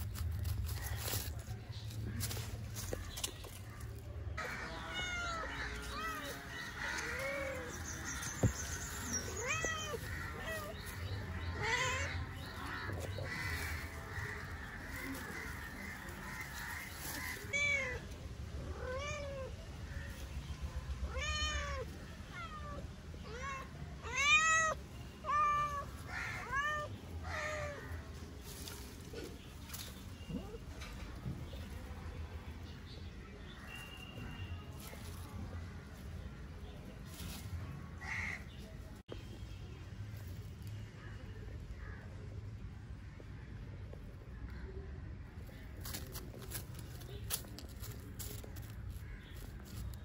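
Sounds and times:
kittens meowing: 4.4 - 13.3.

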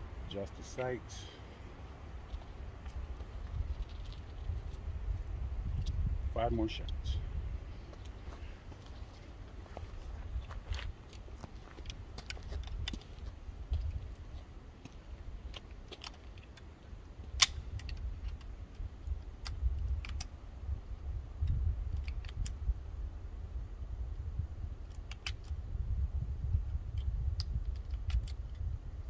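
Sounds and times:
wind rumbling on microphone: 0.0 - 29.0
metallic pistol clicks: 17.3 - 18.8.

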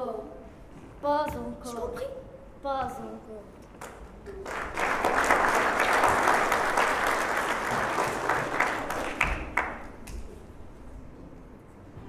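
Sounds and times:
audience applauding: 4.3 - 10.0.

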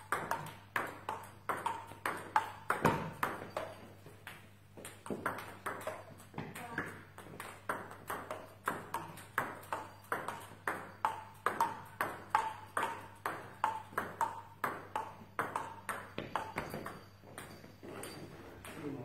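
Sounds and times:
table tennis ball clicking: 0.0 - 17.6.

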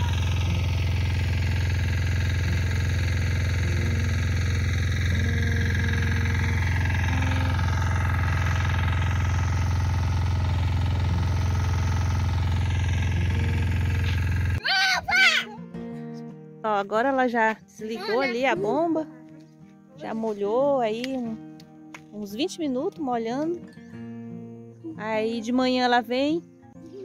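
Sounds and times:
water pump motor running: 0.0 - 14.6.

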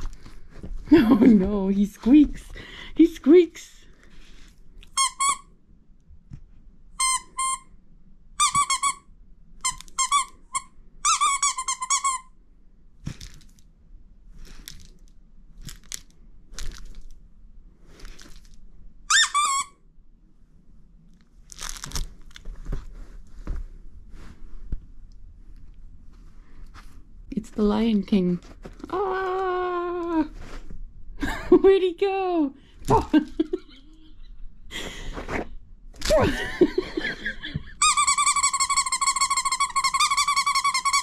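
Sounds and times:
dog toy squeaking: 4.9 - 5.5, 7.0 - 7.7, 8.4 - 9.0, 9.6 - 12.3, 19.1 - 19.8, 37.8 - 41.0
soft crunching: 13.0 - 19.0, 20.8 - 27.3.

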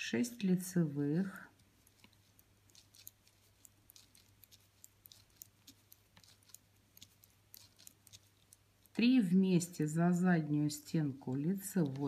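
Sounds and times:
knitting needles clicking: 1.5 - 9.1.

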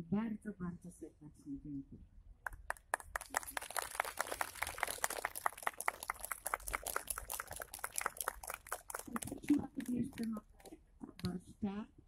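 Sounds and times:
small crowd applauding: 2.5 - 10.7.

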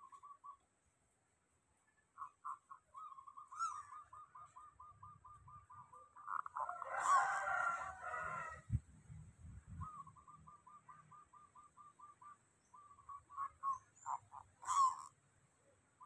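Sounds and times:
longer dove call: 0.0 - 0.7, 1.9 - 8.9, 9.7 - 15.2
dove cooing trill: 2.2 - 8.7, 9.7 - 15.1.

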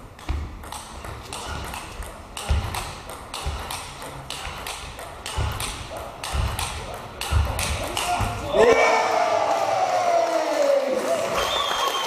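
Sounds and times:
table tennis ball clicking: 0.1 - 8.3.

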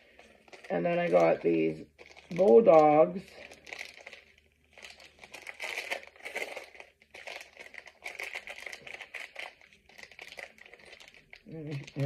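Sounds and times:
plastic packet crinkling: 0.0 - 12.0.

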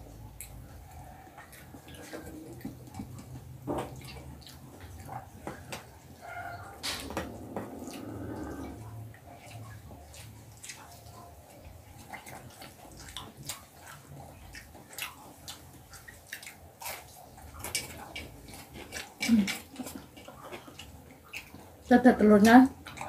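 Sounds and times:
low background hum: 0.0 - 23.0
wet chewing clicks and smacks: 0.0 - 23.0
fingers working rice on plates: 12.0 - 21.9.

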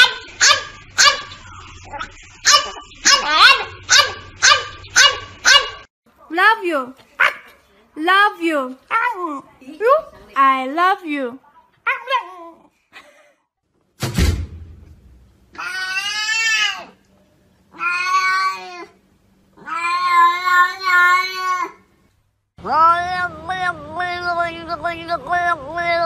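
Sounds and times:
thump: 14.0 - 15.3.

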